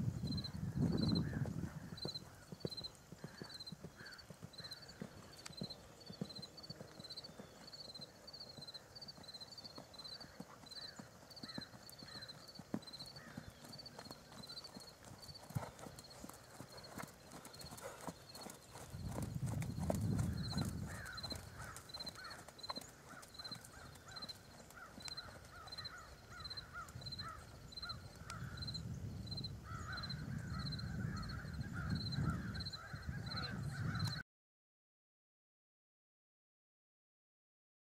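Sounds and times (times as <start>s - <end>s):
hoofbeats on sand: 0.3s - 27.4s.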